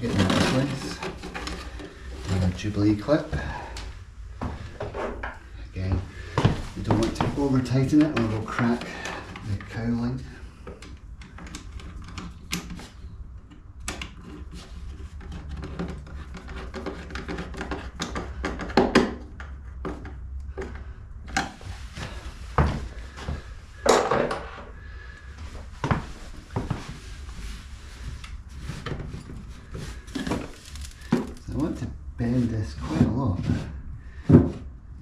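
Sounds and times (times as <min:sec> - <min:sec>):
handling clicks and rubbing: 0:28.0 - 0:31.8.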